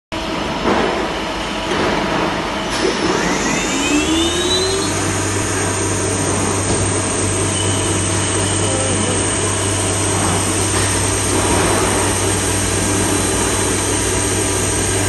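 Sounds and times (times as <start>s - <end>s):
lathe spindle whining and humming: 2.8s - 15.0s.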